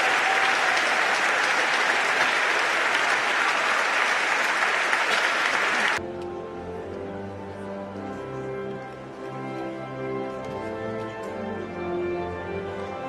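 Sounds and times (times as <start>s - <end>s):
congregation applauding: 0.0s - 6.0s.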